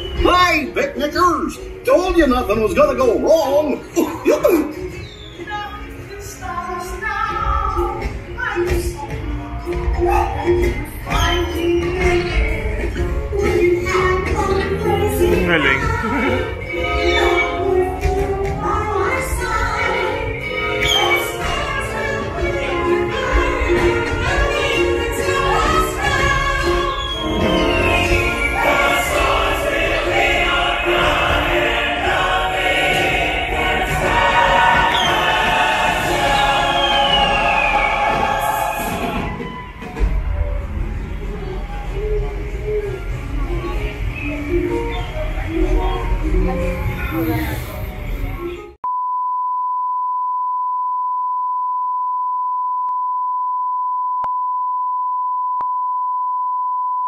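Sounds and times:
choir singing: 9.9 - 40.1
orchestral music: 14.6 - 40.4.

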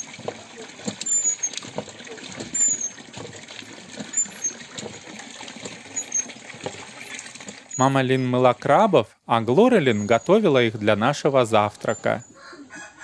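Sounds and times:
water splashing: 0.0 - 8.5.

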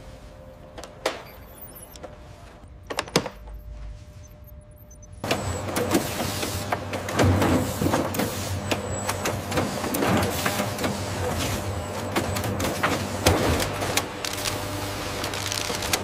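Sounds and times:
machinery hum: 0.0 - 16.0
mechanical clicks and clacks: 2.8 - 3.8.

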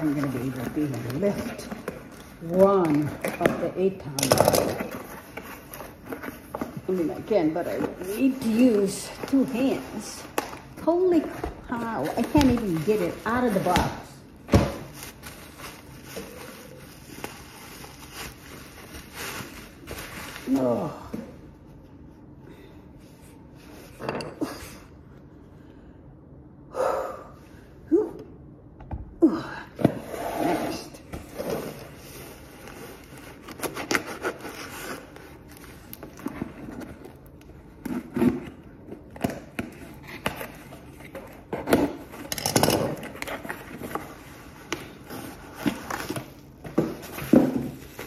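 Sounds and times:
packaging scraping and rustling: 0.0 - 14.2, 14.8 - 20.9, 30.0 - 48.0
person breathing: 24.5 - 27.8.

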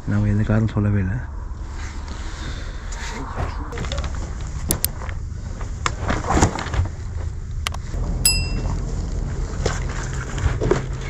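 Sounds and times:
bright ringing ding: 8.2 - 8.8.

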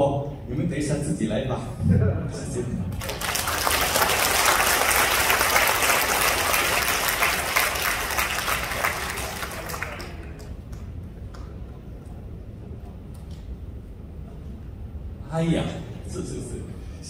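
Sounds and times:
audience applauding: 3.0 - 10.9.

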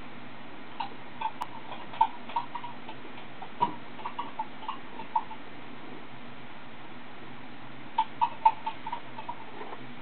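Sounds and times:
sharp clicks and ticks: 0.8 - 5.4.

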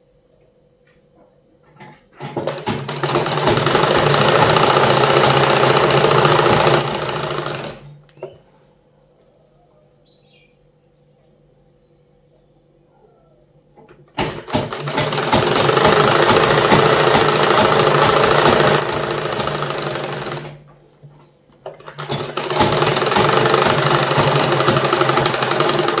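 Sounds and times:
sewing machine stitching: 2.2 - 8.0, 14.1 - 20.7, 21.7 - 26.0.

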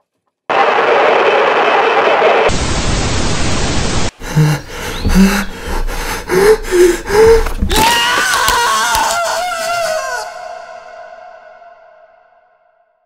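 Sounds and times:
tv static hiss: 0.6 - 4.1
person gasping breaths: 4.2 - 7.7.

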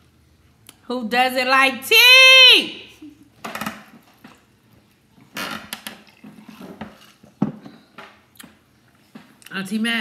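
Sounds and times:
person gulping from a glass: 5.9 - 9.0.

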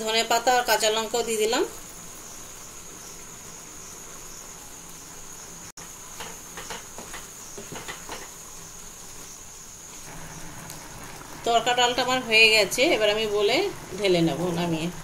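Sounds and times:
steady high-pitched hiss: 0.0 - 15.0.

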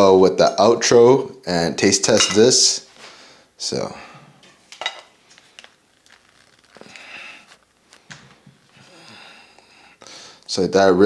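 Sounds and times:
person breathing through nose: 6.8 - 7.6, 8.7 - 10.5.

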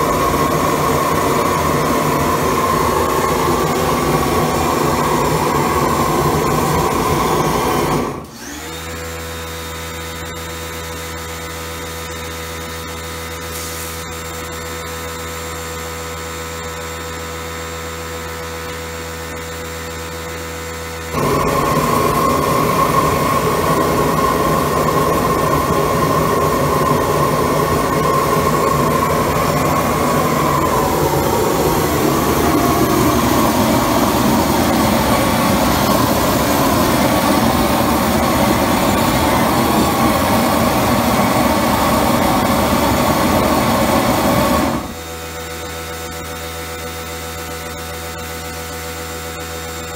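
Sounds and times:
steam jet hissing: 0.0 - 8.3, 13.5 - 14.1, 21.1 - 45.0
steam cleaner humming: 0.0 - 15.0, 17.4 - 46.1
whistle in steam hiss: 13.4 - 14.2.

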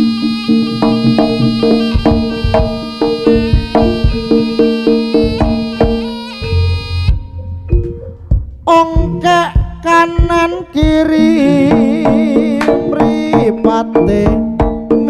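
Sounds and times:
long held note: 0.0 - 9.0
sharp pitched struck notes: 0.0 - 10.3
drum strokes: 0.0 - 14.9.

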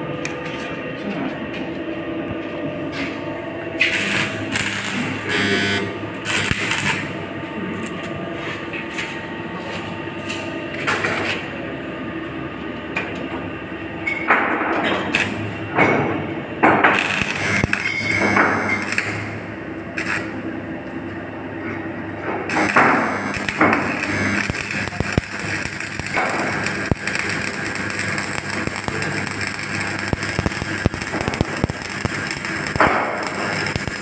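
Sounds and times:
welding machine hum: 0.0 - 0.7, 1.6 - 11.5, 12.8 - 34.0
welding arc crackling: 3.8 - 7.2, 16.8 - 20.4, 22.5 - 34.0.

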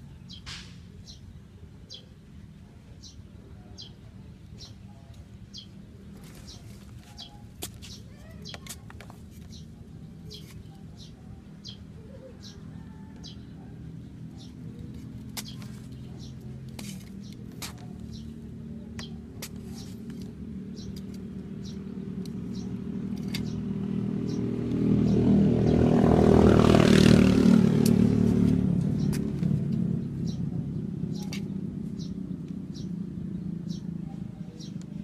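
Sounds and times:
small birds chirping: 0.0 - 35.0
vehicle passing by: 9.5 - 35.0
trowel digging dry soil: 16.7 - 18.2.

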